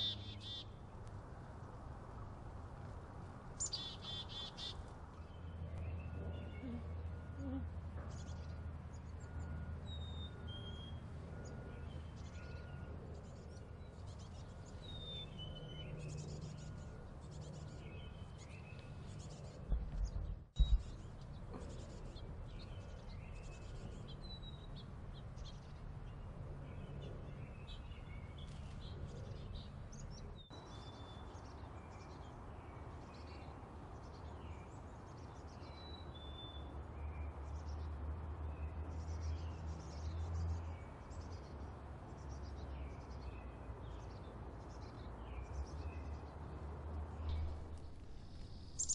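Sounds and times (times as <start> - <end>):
low background rumble: 16.6 - 30.5
loud low thumps: 19.7 - 20.9
chickadees chirping: 48.6 - 48.9.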